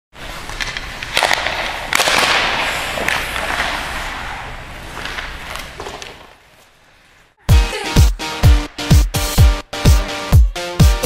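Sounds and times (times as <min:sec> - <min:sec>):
hockey sticks cracking pucks: 0:00.2 - 0:07.2.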